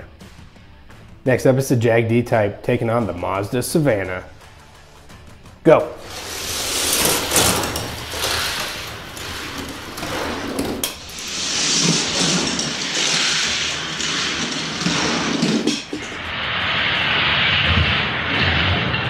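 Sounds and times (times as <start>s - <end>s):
toy cars rattling down plastic track: 6.0s - 16.1s.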